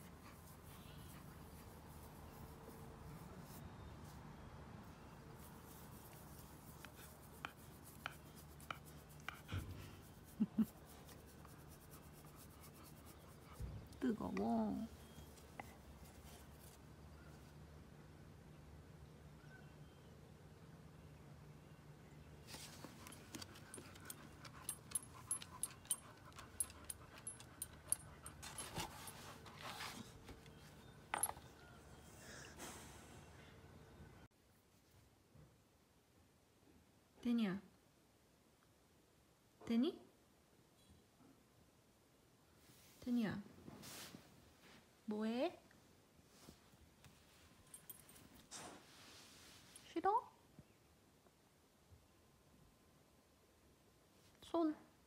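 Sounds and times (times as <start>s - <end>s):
collar tag jingling: 23.0s - 30.0s
dog panting: 23.3s - 29.6s.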